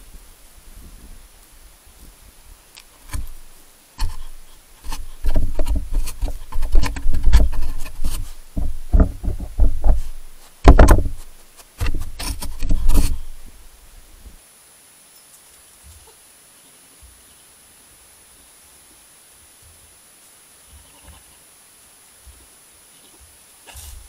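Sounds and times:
heavy knocks thumps and scraping: 0:03.0 - 0:13.6
animal knocking against camera housing: 0:04.9 - 0:13.4.

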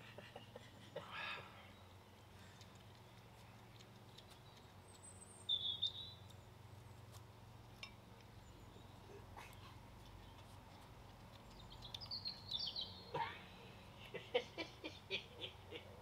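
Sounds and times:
faint low hum: 0:00.0 - 0:16.0
high bird chirp: 0:04.2 - 0:06.3, 0:11.5 - 0:13.1.

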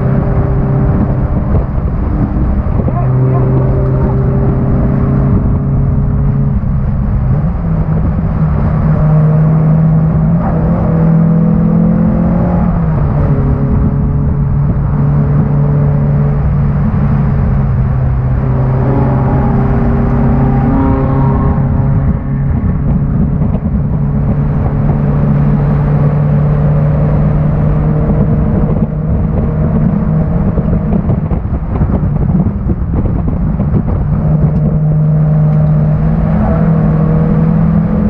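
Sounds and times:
car engine under hard load: 0:00.0 - 0:38.0.

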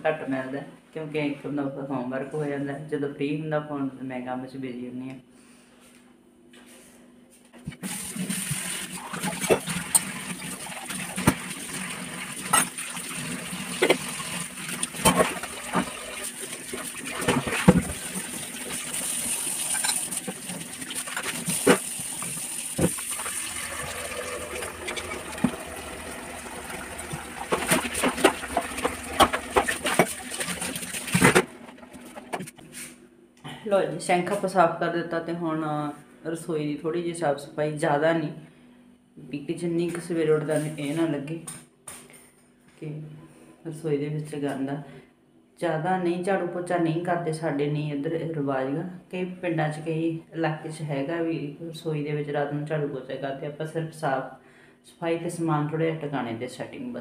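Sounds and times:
tap water running into sink: 0:07.8 - 0:31.5
steel pots and dishes clanking: 0:19.6 - 0:20.1.

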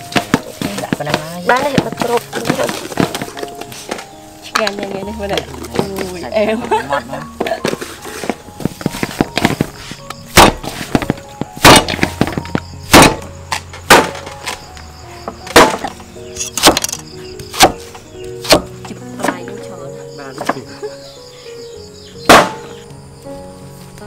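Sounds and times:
heavy chopping on wood: 0:00.0 - 0:03.5, 0:08.7 - 0:14.6, 0:15.4 - 0:19.4, 0:22.3 - 0:22.7
background music: 0:00.0 - 0:24.0.

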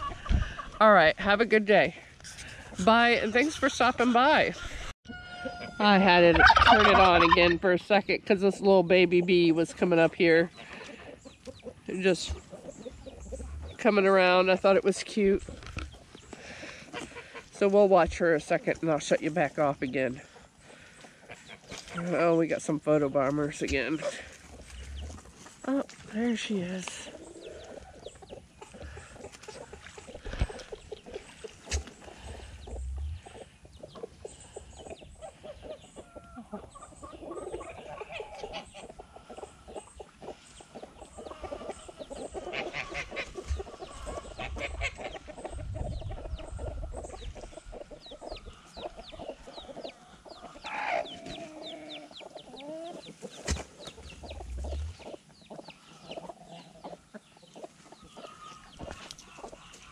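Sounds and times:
hens clucking: 0:00.0 - 0:59.9
low rumbles: 0:13.0 - 0:14.1, 0:24.6 - 0:25.3, 0:32.3 - 0:33.4, 0:54.0 - 0:55.0.

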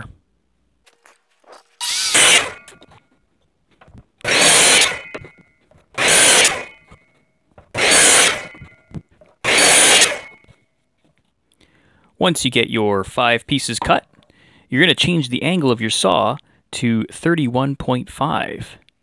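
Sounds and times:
miter saw cutting board: 0:01.8 - 0:02.9, 0:04.2 - 0:07.0, 0:07.6 - 0:10.5.

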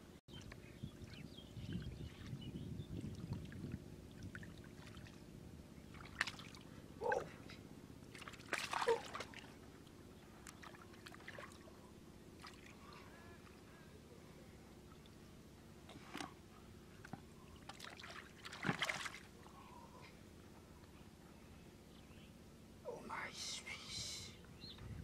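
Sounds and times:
hands sloshing in muddy water: 0:05.8 - 0:07.3, 0:08.1 - 0:09.6, 0:10.4 - 0:11.8, 0:12.4 - 0:13.6, 0:17.0 - 0:19.4.

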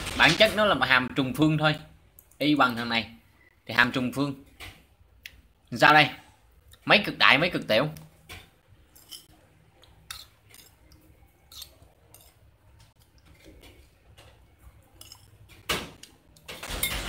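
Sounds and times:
burst of noise: 0:00.0 - 0:00.8.

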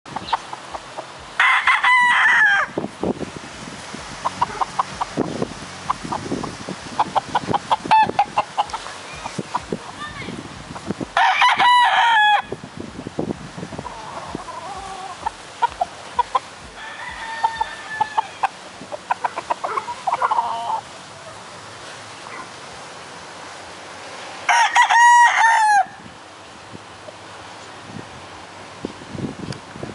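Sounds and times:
roosters crowing: 0:00.7 - 0:02.8, 0:07.0 - 0:08.8, 0:11.2 - 0:12.6, 0:13.8 - 0:21.1, 0:24.4 - 0:26.0.

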